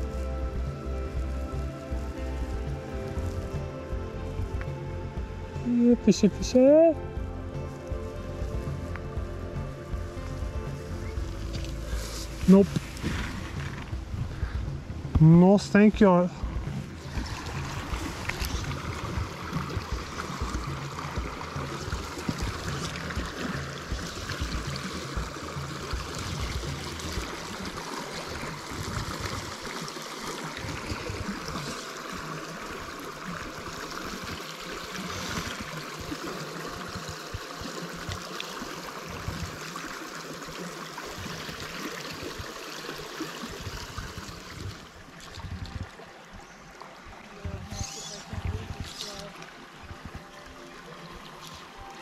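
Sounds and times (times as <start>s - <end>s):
stream gurgling: 0.0s - 52.0s
gusty low rumbling: 7.0s - 27.5s.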